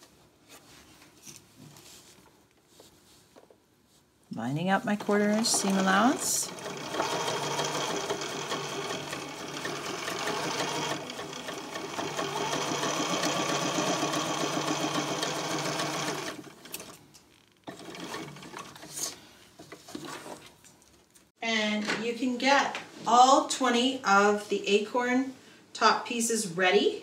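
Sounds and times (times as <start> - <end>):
sewing machine stitching: 4.9 - 17.0, 17.6 - 19.2.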